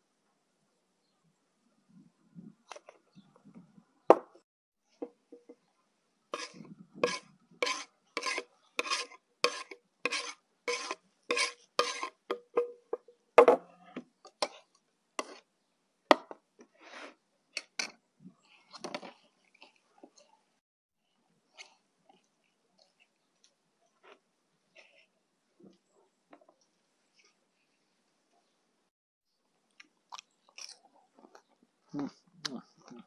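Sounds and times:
rhythmic food cutting strokes: 6.4 - 12.3.

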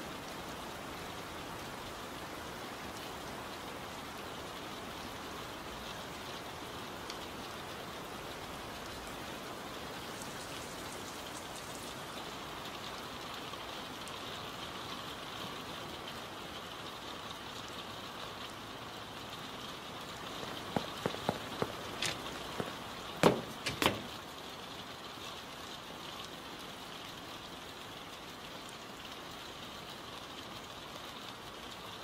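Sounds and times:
steady rain: 0.0 - 32.0
short sharp knocks: 20.4 - 24.2.

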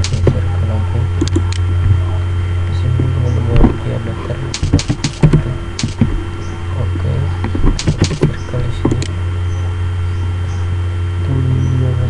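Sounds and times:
computer keys and mouse clicks: 0.0 - 0.4, 1.2 - 1.7, 4.5 - 6.1, 7.7 - 9.1
electrical hum: 0.0 - 12.0.

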